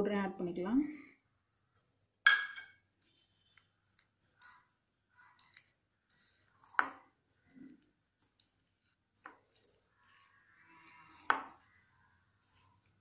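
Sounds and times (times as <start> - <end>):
steel cup clinking on bowl: 2.3 - 2.8
wooden spoon scraping in bowl: 5.3 - 13.0.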